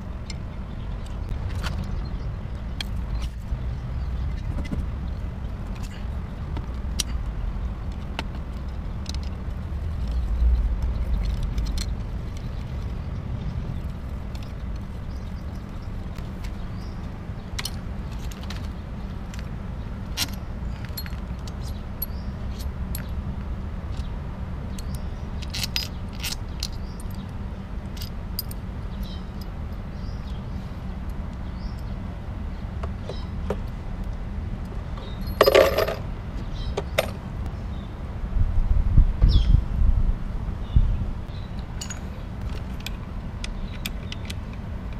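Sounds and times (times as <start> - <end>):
steady low rumble: 0.0 - 44.9
metal tools clinking on engine: 20.2 - 23.1, 35.0 - 36.1, 41.8 - 43.0.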